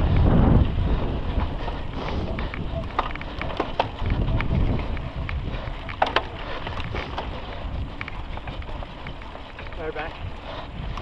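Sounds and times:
bike rattling over dirt trail: 0:00.0 - 0:11.0
wind buffeting microphone: 0:00.0 - 0:11.0.

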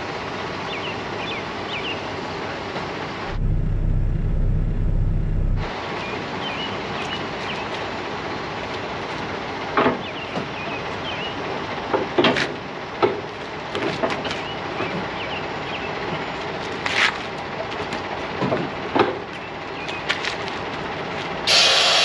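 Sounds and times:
steady outdoor hiss: 0:00.0 - 0:04.0, 0:05.6 - 0:22.0.

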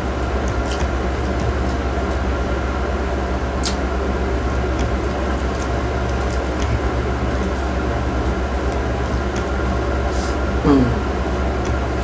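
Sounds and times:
low machine hum: 0:00.0 - 0:12.0
mouth clicks from chewing: 0:03.6 - 0:03.8.

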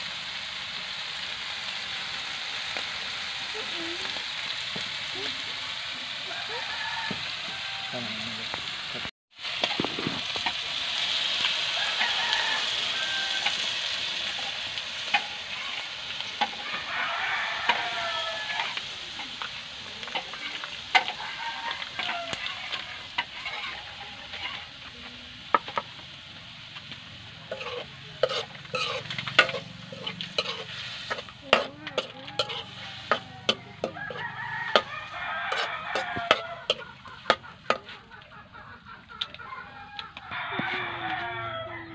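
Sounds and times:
spatula scraping wok: 0:00.0 - 0:41.5
meat sizzling in a wok: 0:00.0 - 0:41.6.

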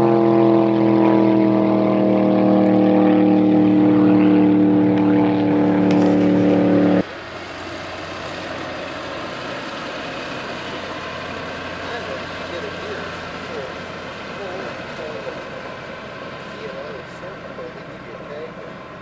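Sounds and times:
race car engine at high revs: 0:00.0 - 0:07.2.

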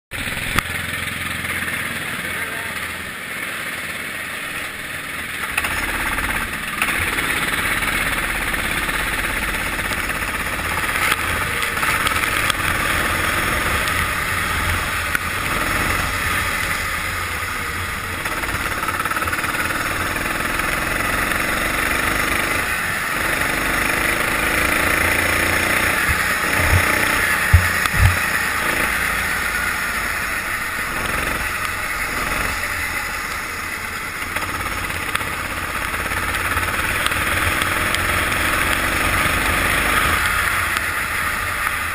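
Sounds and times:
go-kart engine: 0:00.1 - 0:41.9
short knocks: 0:26.0 - 0:28.3.

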